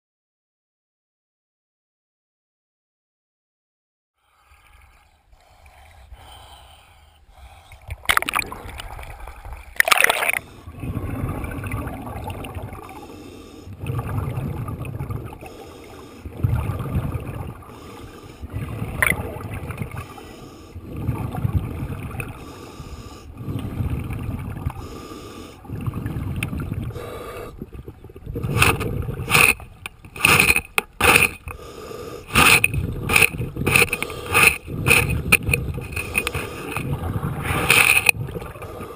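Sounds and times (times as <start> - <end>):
diver breathing through regulator: 4.2 - 12.1, 12.8 - 14.6, 15.4 - 27.8, 28.4 - 38.9
exhaled bubbles gurgling underwater: 7.7 - 38.9
sharp clicks and knocks on hull: 28.5 - 31.6, 32.3 - 36.9, 37.5 - 38.2.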